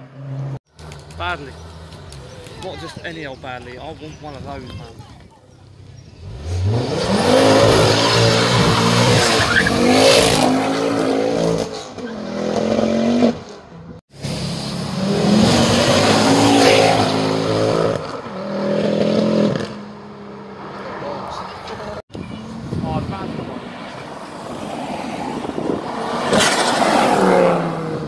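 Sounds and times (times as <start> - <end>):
car engine revving and accelerating: 6.2 - 13.6, 14.2 - 21.6, 23.8 - 28.0.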